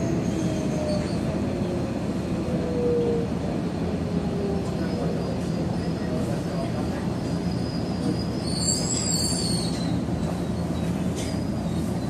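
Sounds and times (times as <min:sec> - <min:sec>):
electric train rumble and hum: 0:00.0 - 0:12.0
wheel squeal: 0:07.5 - 0:12.0.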